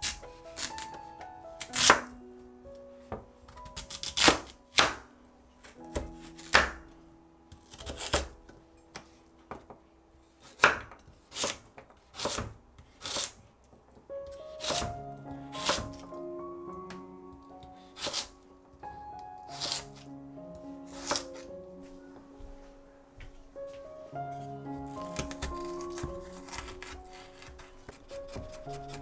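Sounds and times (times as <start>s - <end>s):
soft background music: 0.0s - 29.0s
knife cutting on wooden board: 21.0s - 21.4s, 25.1s - 29.0s.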